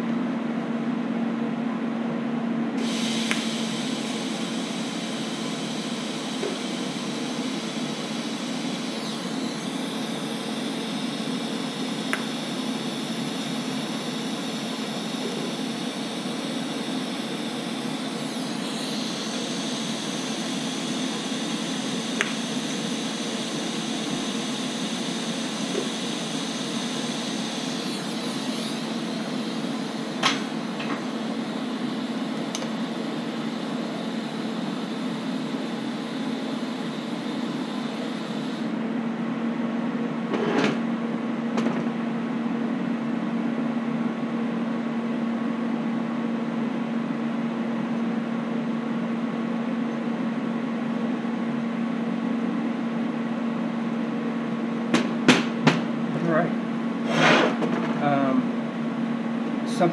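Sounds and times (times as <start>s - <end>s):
fan-like hum: 0.0s - 59.9s
welding arc buzzing and hissing: 2.8s - 38.8s.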